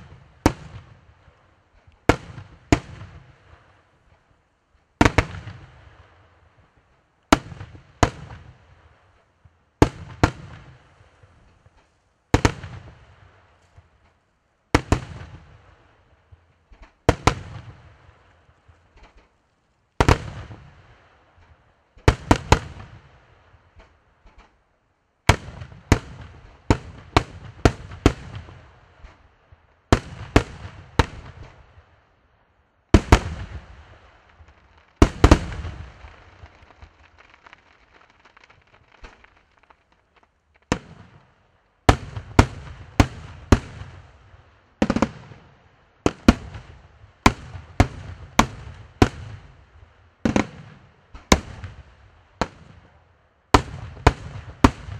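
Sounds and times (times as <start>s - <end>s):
firework shells bursting: 34.3s - 41.3s.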